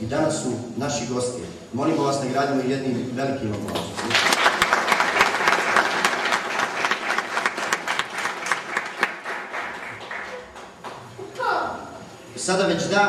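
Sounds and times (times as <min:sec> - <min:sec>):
audience applauding: 0:03.8 - 0:11.2.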